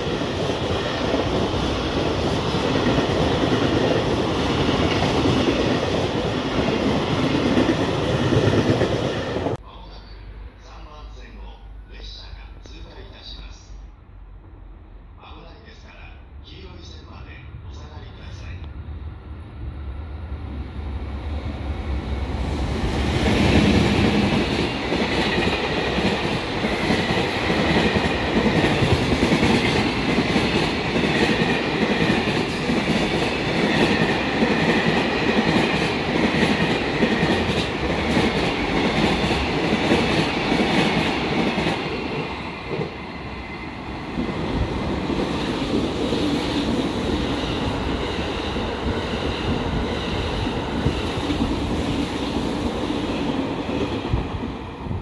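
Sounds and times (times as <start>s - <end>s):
high ringing of wheels on rail: 21.4s - 55.0s.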